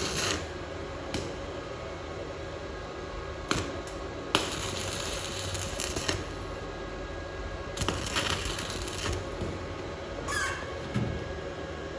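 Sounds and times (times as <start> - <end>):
welding arc crackling and hissing: 0.0 - 0.6, 3.3 - 6.7, 7.5 - 10.4.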